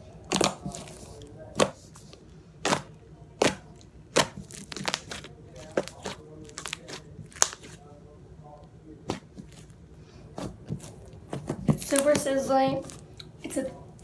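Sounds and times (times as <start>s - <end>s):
slime popping and crackling: 0.3s - 1.8s, 2.6s - 7.8s, 10.6s - 13.1s.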